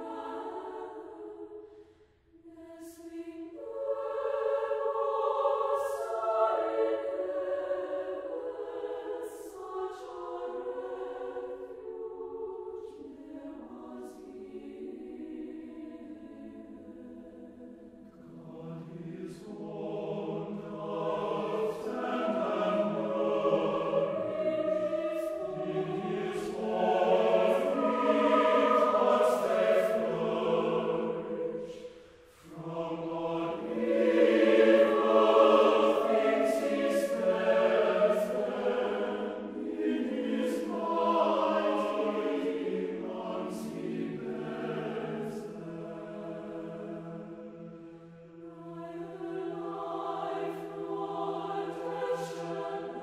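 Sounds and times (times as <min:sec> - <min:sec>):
choir singing: 0:00.0 - 0:53.0.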